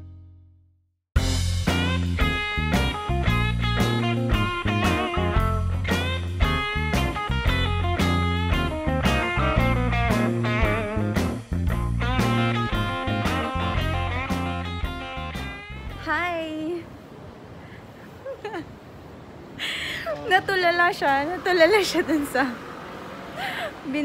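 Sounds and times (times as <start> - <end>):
guitar rock music: 1.2 - 16.2.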